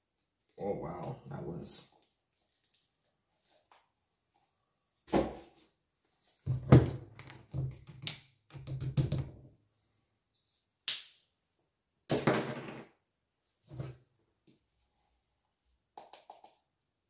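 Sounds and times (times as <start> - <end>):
plastic tub knocks and scrapes: 6.4 - 7.9.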